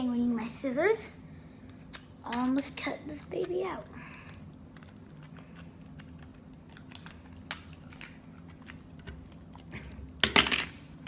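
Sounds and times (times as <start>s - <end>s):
plastic crinkling: 2.3s - 10.2s.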